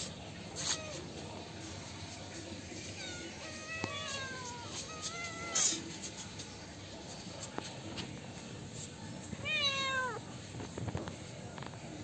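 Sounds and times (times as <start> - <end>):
cats meowing: 0.6 - 1.2, 2.8 - 6.0, 9.4 - 10.3.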